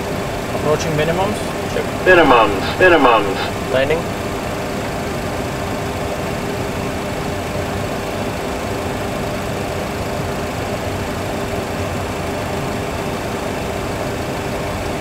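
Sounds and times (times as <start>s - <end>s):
faint constant hum: 0.0s - 5.1s.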